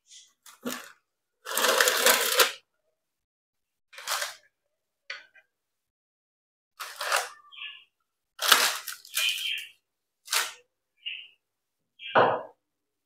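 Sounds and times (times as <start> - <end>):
parchment paper rustling: 0.1 - 2.6, 3.9 - 4.5, 6.8 - 7.8, 8.4 - 10.6.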